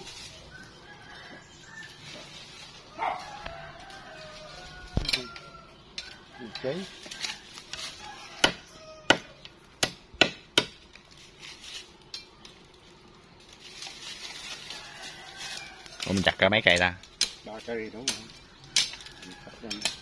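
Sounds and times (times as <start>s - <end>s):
rustling of bamboo cane: 0.0s - 9.1s, 10.8s - 20.0s
machete chopping bamboo: 7.0s - 10.9s.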